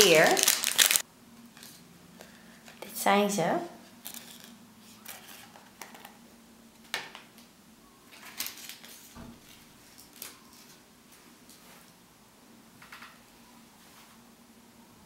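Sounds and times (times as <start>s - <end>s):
foam toys rustling: 0.0s - 1.0s.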